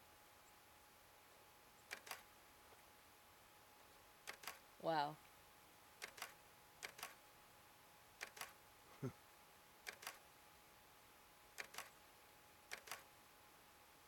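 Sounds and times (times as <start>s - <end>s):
sharp double clicks: 1.9s - 2.2s, 4.3s - 4.6s, 6.0s - 7.2s, 8.2s - 8.5s, 9.9s - 10.2s, 11.6s - 11.9s, 12.7s - 13.0s.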